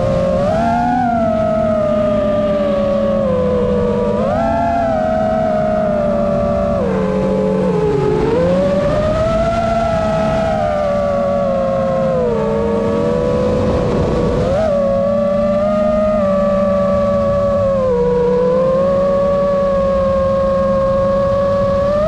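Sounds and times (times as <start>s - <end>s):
quadcopter motors whining: 0.0s - 22.0s.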